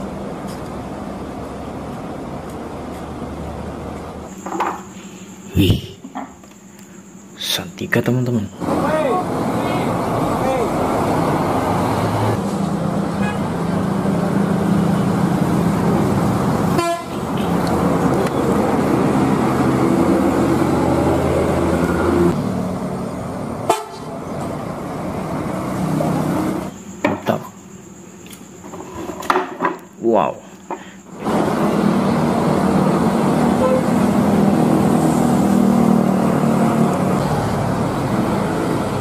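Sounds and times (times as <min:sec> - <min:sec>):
bus engines driving past: 0:00.0 - 0:05.9, 0:07.4 - 0:28.7, 0:30.3 - 0:39.0
bus horn long tones: 0:13.2 - 0:13.6, 0:16.7 - 0:17.6, 0:23.7 - 0:24.1, 0:33.5 - 0:34.2.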